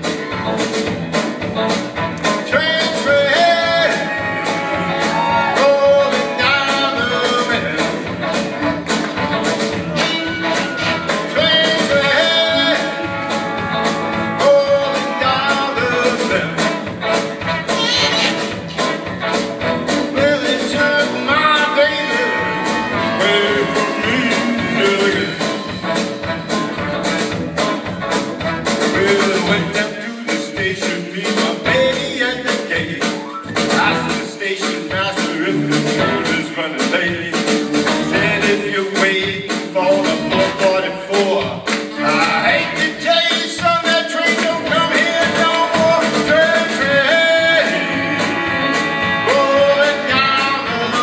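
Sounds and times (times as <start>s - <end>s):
drum kit beat: 0.0s - 51.0s
live rock band playing: 0.0s - 51.0s
lead singer singing: 2.4s - 8.1s, 11.2s - 13.2s, 20.1s - 25.6s, 28.9s - 51.0s.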